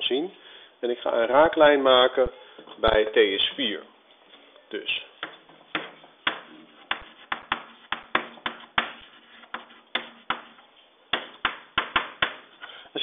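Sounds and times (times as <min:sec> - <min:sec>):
chalk tapping on blackboard: 0:05.2 - 0:12.6.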